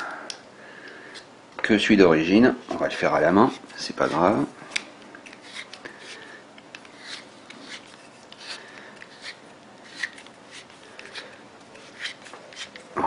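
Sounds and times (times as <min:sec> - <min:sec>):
fingers rubbing on parts: 0:06.8 - 0:12.8.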